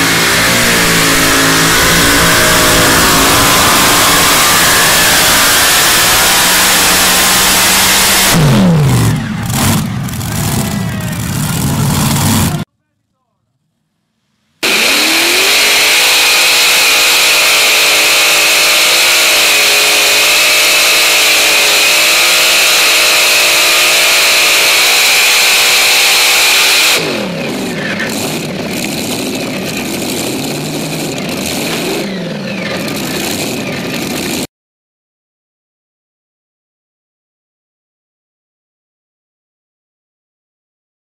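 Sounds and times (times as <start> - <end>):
engines revving at full throttle: 0.0 - 12.7, 14.6 - 34.5.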